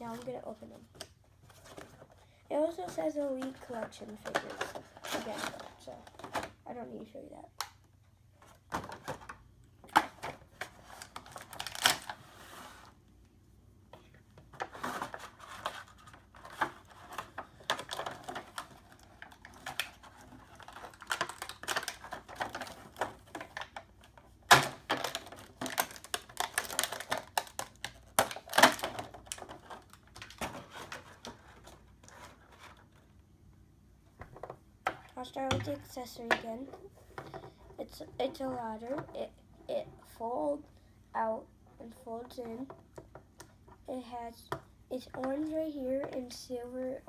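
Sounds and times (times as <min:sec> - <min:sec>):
sharp plastic snaps: 0:07.5 - 0:07.9
plastic packaging crinkling: 0:10.4 - 0:12.2, 0:14.6 - 0:33.0.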